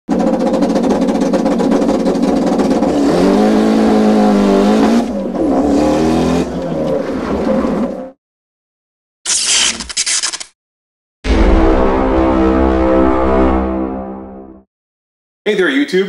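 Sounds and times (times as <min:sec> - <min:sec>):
race car engine accelerating: 0:00.1 - 0:08.2.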